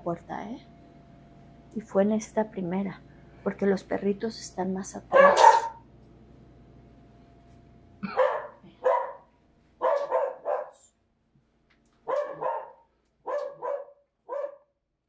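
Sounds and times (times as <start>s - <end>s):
dogs barking: 5.1s - 5.8s, 8.0s - 10.9s, 12.1s - 14.6s.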